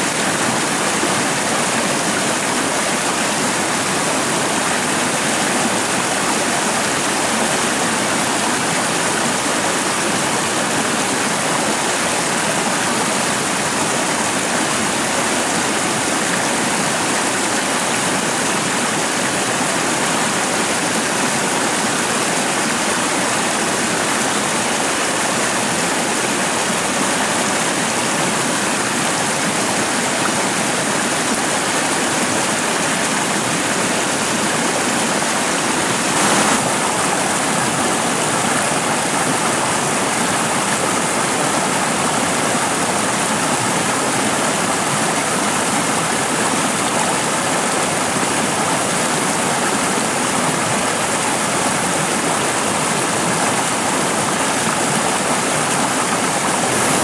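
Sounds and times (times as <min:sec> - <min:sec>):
stream water rushing: 0:00.0 - 0:57.0.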